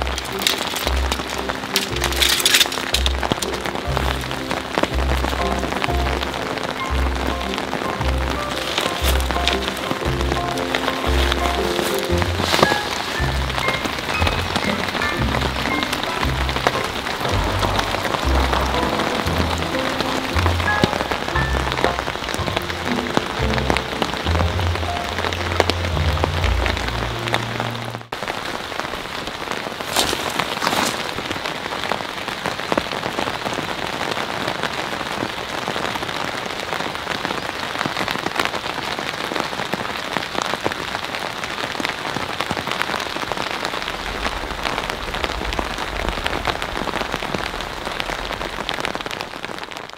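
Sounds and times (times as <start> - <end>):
background music with low bass: 0.0 - 28.1
steady rain falling: 0.0 - 49.9
low rumble: 13.2 - 28.0.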